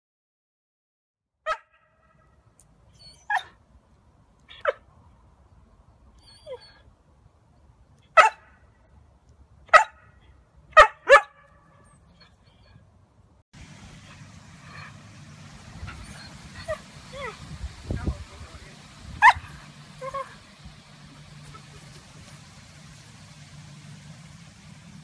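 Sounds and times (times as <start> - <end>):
dog barking: 1.4 - 1.9, 8.2 - 8.6, 9.7 - 11.5, 19.2 - 20.3.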